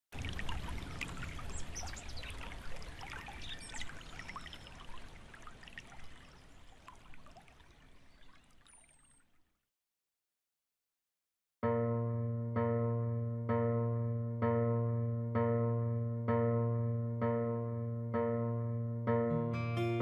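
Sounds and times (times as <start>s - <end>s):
trickling water: 0.1s - 9.6s.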